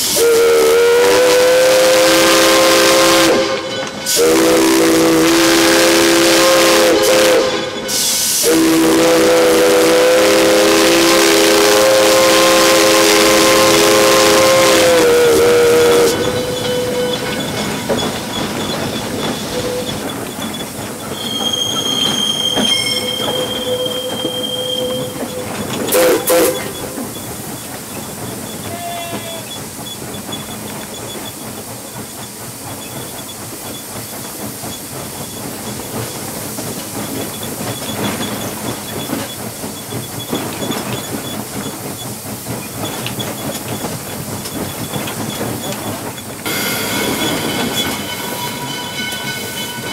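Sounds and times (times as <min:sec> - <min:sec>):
loud steam burst: 0:00.0 - 0:17.0
steam hiss: 0:00.0 - 0:49.9
wheels clattering over rail joints: 0:15.6 - 0:28.8, 0:34.7 - 0:49.9.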